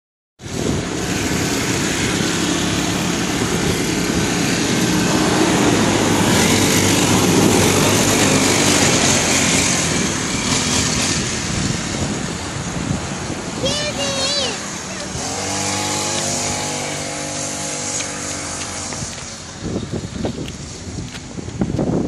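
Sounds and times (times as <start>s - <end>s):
small engine running: 0.5s - 12.2s, 13.6s - 19.4s.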